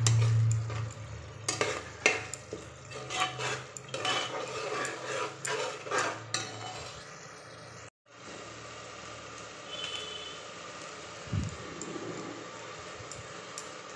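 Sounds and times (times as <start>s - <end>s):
ladle scraping and clinking pot: 0.0s - 7.1s.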